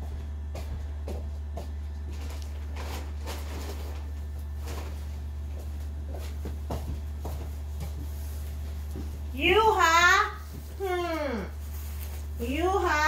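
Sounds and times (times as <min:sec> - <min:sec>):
steady low hum: 0:00.0 - 0:13.0
soft rustles: 0:02.0 - 0:09.4, 0:10.4 - 0:12.9.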